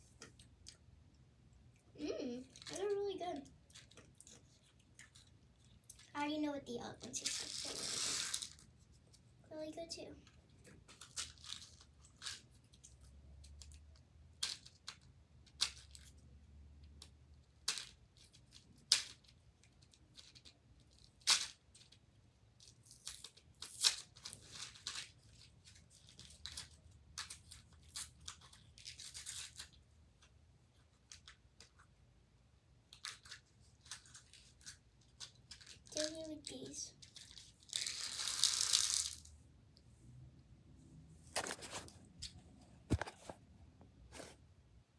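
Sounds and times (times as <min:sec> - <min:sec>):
packaging crinkling: 0:32.9 - 0:39.3.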